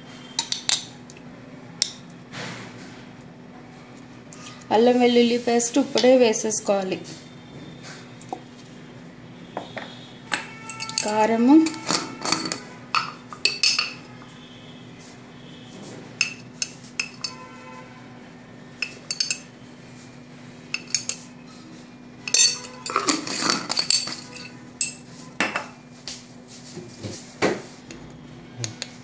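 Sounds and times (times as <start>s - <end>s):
spoon tapping glass jar: 0.4s - 0.9s, 10.3s - 14.0s, 16.2s - 17.4s, 18.8s - 19.5s, 20.8s - 21.2s.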